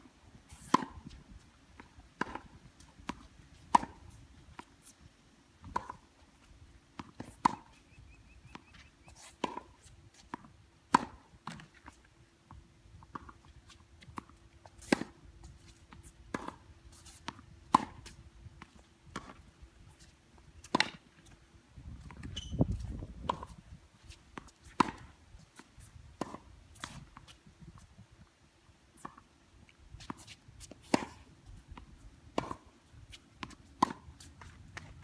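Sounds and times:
tennis ball struck by racket: 2.2 - 4.1, 17.2 - 18.2, 20.6 - 21.0, 24.4 - 25.2, 32.3 - 32.7, 33.4 - 34.9.

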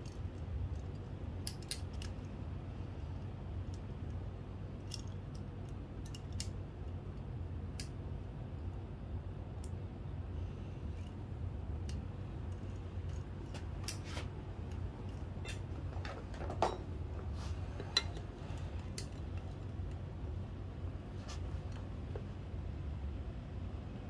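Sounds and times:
steady low hum: 0.0 - 24.0
metallic clicks of hand tools: 0.8 - 2.2.

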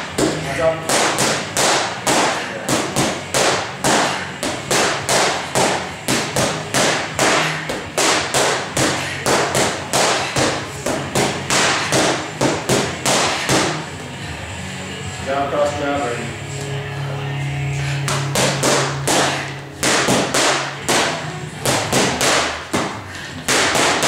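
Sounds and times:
boxing gloves punching mitts: 0.0 - 14.0, 18.0 - 24.0.

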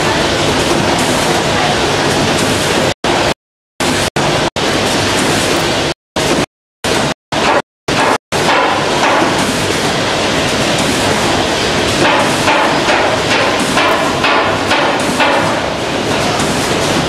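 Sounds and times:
packaging machinery knocking and clicking: 11.9 - 17.0.

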